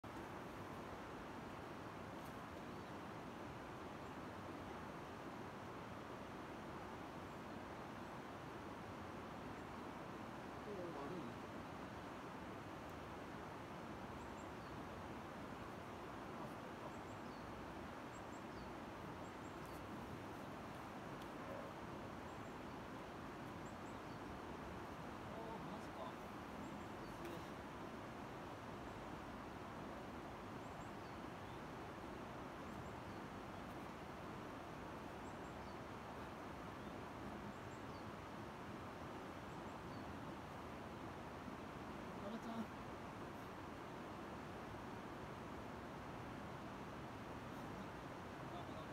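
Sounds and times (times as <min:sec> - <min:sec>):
outdoor background hiss: 0:00.0 - 0:48.9.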